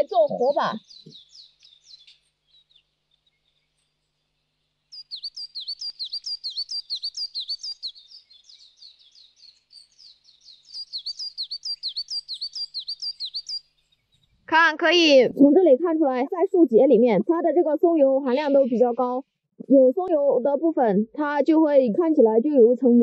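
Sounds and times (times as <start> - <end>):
small bird chirping: 0.0 - 15.3, 16.8 - 19.3.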